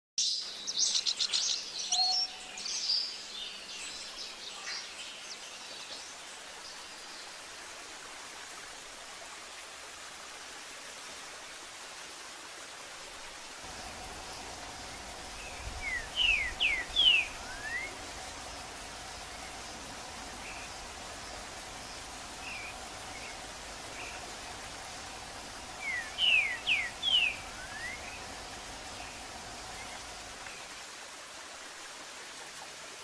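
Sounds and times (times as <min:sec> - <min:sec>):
steady hiss: 0:00.3 - 0:33.0
birds chirping: 0:13.6 - 0:30.6
bird whistling sliding notes: 0:13.8 - 0:30.3.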